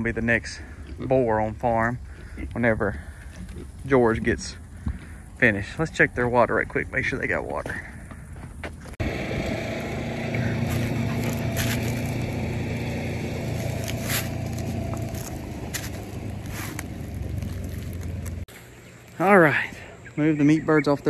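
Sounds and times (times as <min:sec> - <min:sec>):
low mechanical hum: 0:07.9 - 0:20.3.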